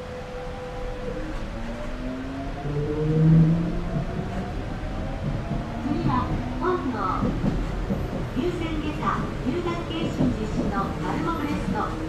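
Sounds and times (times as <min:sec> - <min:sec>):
train traction motors whining: 0:00.0 - 0:12.0
low hum: 0:00.6 - 0:06.2.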